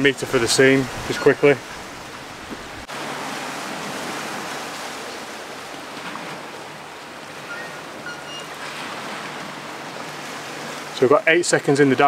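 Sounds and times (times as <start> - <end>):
small waves on rocky shore: 0.0 - 12.0
brief high tones: 7.4 - 8.6.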